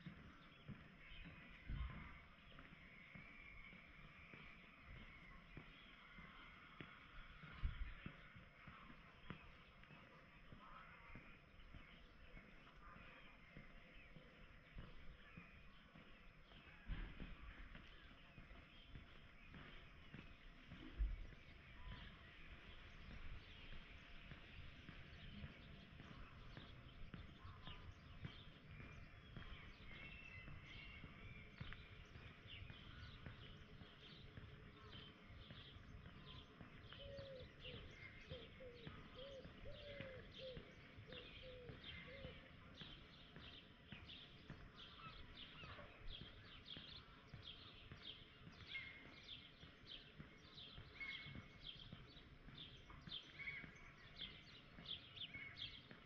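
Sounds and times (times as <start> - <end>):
outdoor background noise: 0.0 - 56.0
small birds chirping: 0.0 - 56.0
lower bird calls: 10.6 - 42.8.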